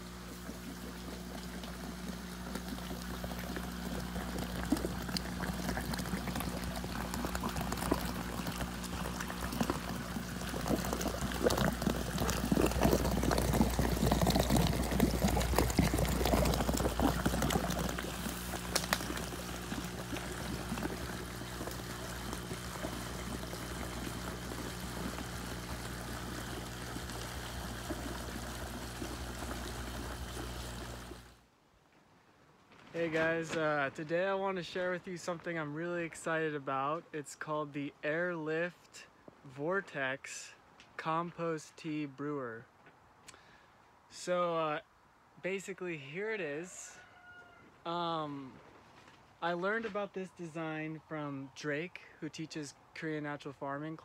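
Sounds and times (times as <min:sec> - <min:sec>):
water swirling and bubbling: 0:00.0 - 0:31.4
steady low hum: 0:00.0 - 0:31.5.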